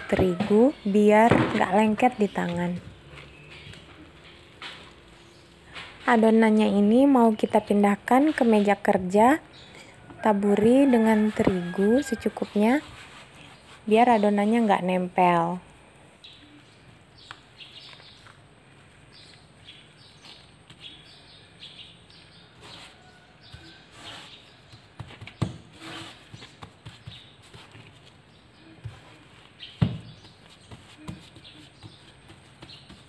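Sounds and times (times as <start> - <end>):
dough squishing and patting: 17.2 - 21.2, 22.0 - 33.0.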